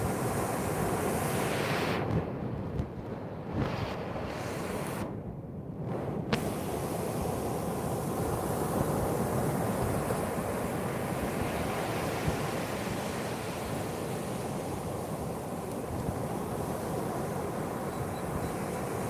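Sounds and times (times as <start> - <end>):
wind on microphone: 0.0 - 19.0
surf breaking on beach: 6.3 - 19.0.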